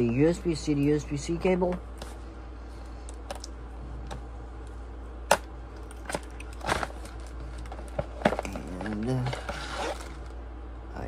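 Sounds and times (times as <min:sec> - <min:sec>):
steady low hum: 0:00.0 - 0:11.0
packaging clicks and crinkles: 0:05.9 - 0:10.3.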